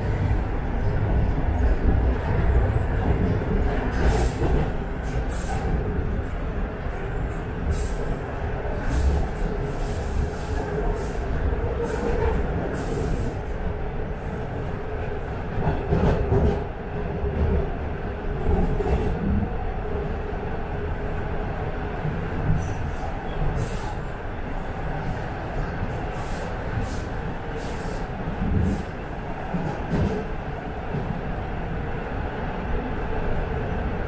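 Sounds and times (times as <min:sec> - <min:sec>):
subway train rumbling on track: 0:00.0 - 0:34.0.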